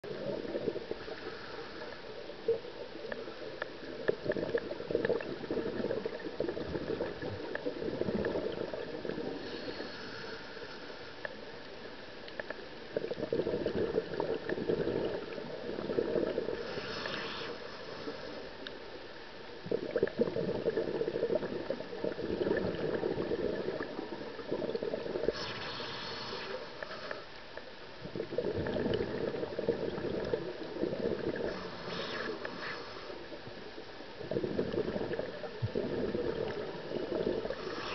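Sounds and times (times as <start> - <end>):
exhaled air bubbling: 0.0 - 37.9
regulator inhalation hiss: 9.4 - 11.1, 16.6 - 18.4, 25.3 - 27.2, 31.5 - 33.2, 37.5 - 37.9.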